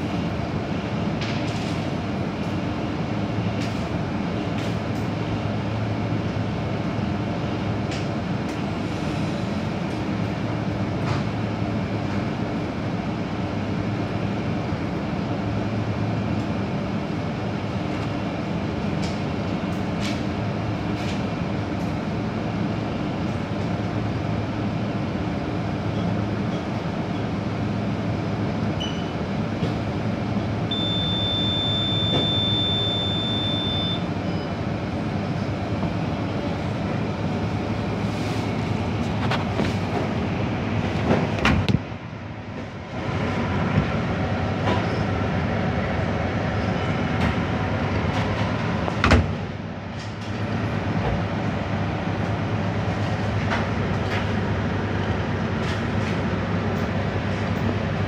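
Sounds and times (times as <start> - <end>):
microwave oven humming: 9.8 - 38.0
long high beep: 30.7 - 34.5.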